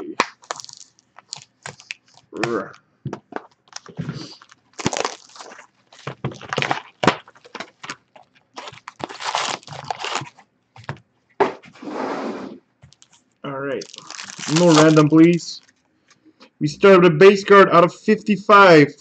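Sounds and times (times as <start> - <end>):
plastic wrap crinkling and tearing: 0.2 - 2.6, 3.4 - 11.0, 12.9 - 15.8.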